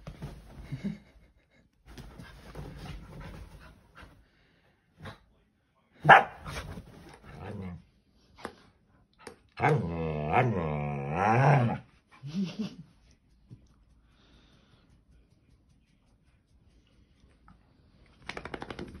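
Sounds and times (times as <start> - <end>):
dog barking: 6.0 - 6.6
dog growling: 9.6 - 11.8.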